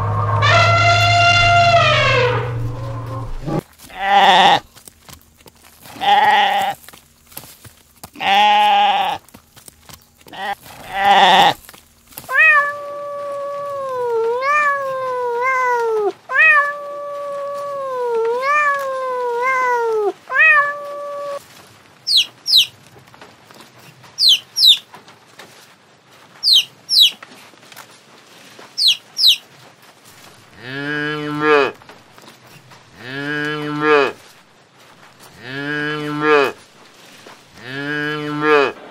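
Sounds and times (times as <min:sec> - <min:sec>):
wavering animal calls: 0:00.0 - 0:04.6, 0:12.3 - 0:21.4
chicks peeping: 0:22.1 - 0:22.7, 0:24.2 - 0:24.8, 0:26.4 - 0:27.2, 0:28.8 - 0:29.4.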